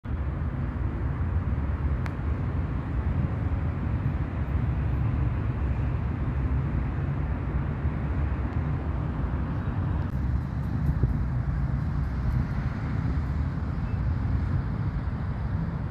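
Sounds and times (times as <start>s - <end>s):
low rumbling outdoor background: 0.0s - 15.9s
sharp tick: 2.0s - 2.2s.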